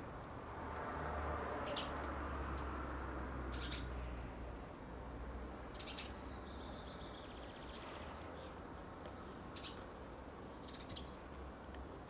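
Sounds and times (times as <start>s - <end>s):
songbirds chirping: 1.6s - 2.8s, 3.4s - 12.0s
bird trill: 3.5s - 3.9s, 5.1s - 8.5s, 9.6s - 9.8s, 10.6s - 11.2s.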